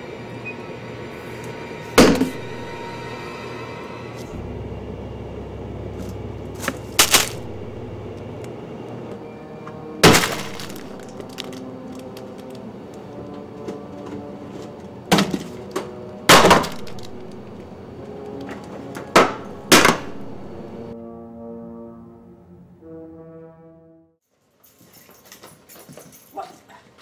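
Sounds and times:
objects crashing and breaking: 6.6s - 8.0s, 10.0s - 12.5s, 16.3s - 17.7s.

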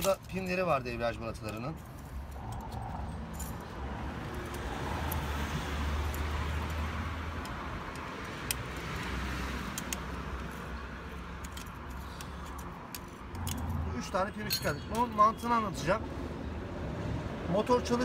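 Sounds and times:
road traffic rumble: 0.0s - 18.0s
screwdriver clicks and scrapes on metal: 7.4s - 13.8s.

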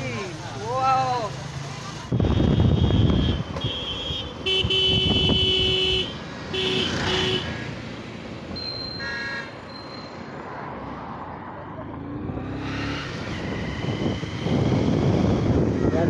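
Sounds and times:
vehicle horn honking: 2.2s - 7.6s
motorbike running noise: 11.8s - 16.0s.

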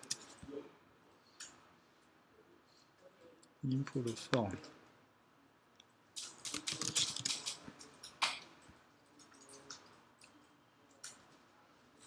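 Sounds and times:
computer keyboard typing: 0.0s - 0.4s, 6.2s - 7.6s.

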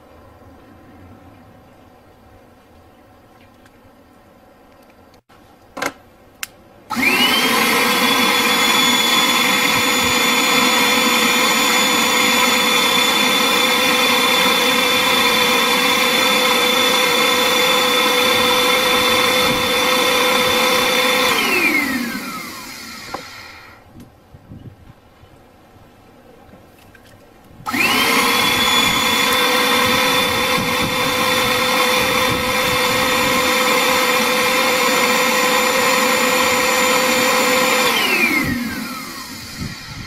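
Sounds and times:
vacuum cleaner motor whining: 6.9s - 23.8s, 27.7s - 40.0s.

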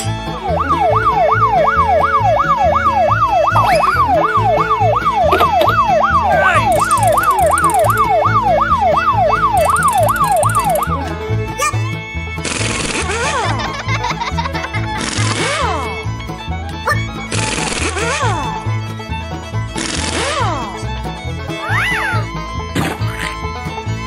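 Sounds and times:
toy siren wailing: 0.4s - 11.0s.

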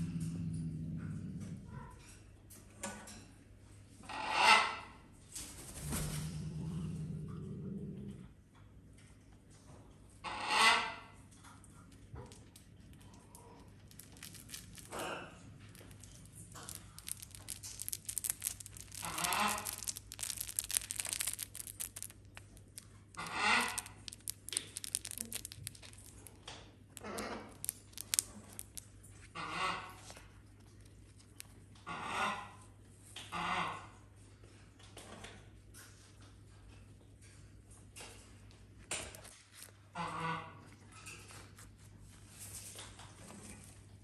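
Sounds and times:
bird tearing crinkly fabric: 12.4s - 26.4s, 27.0s - 29.4s.

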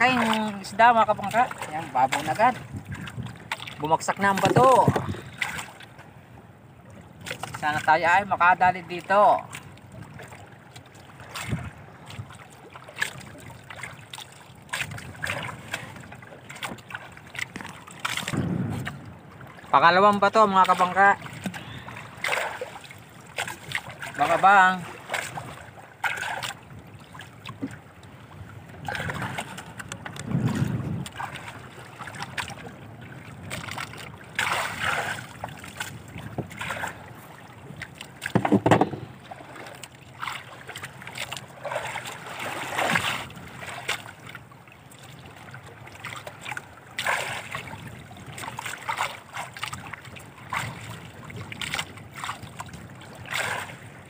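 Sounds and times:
waves slapping against boat hull: 0.0s - 54.0s
knock on boat: 4.3s - 5.2s, 18.2s - 19.0s, 27.5s - 27.8s, 38.2s - 39.2s.

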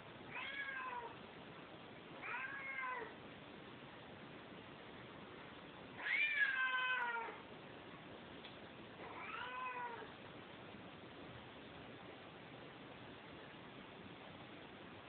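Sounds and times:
cat meowing: 0.3s - 1.2s, 2.2s - 3.2s, 6.0s - 7.4s, 9.0s - 10.1s.

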